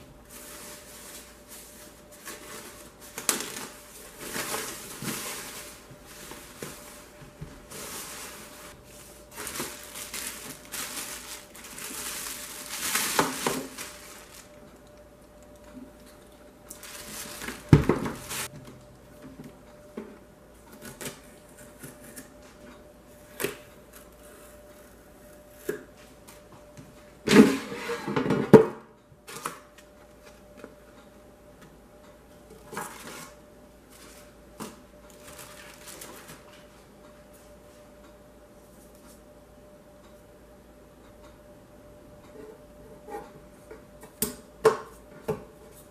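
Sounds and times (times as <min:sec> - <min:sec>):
faint steady hum: 0:00.0 - 0:45.9
paper and cardboard rustling: 0:00.3 - 0:14.6, 0:16.8 - 0:18.5, 0:32.7 - 0:36.7
basket drawer sliding out: 0:27.3 - 0:28.5.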